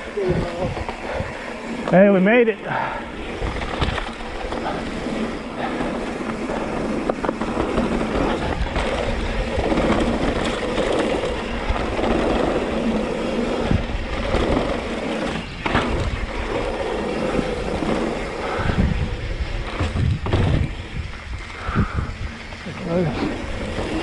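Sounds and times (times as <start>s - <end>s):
wind on microphone: 0.0s - 1.9s, 2.7s - 24.0s
tyre noise on dirt: 0.0s - 24.0s
bike clicks and knocks: 3.1s - 22.6s.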